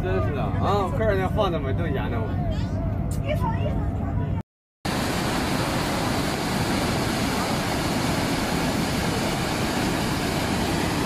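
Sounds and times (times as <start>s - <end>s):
river rushing torrent: 4.9s - 11.0s.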